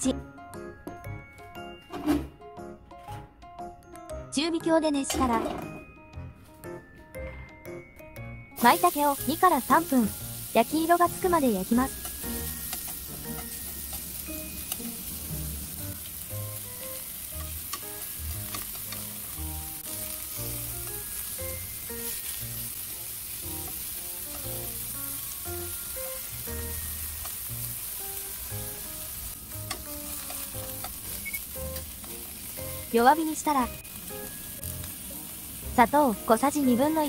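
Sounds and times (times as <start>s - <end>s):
mushrooms sizzling in frying pan: 8.5s - 37.0s
chopsticks clicking: 11.9s - 14.1s, 17.3s - 19.2s, 27.2s - 27.4s, 29.6s - 32.2s.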